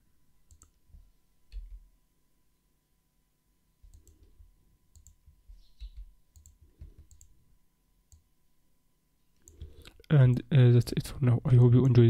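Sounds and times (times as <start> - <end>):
mouse and keyboard clicks: 4.9 - 7.3.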